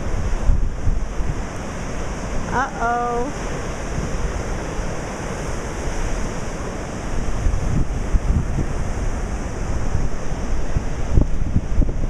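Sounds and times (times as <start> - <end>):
surf crashing on seawall: 0.0 - 12.0
wind buffeting microphone: 0.0 - 12.0.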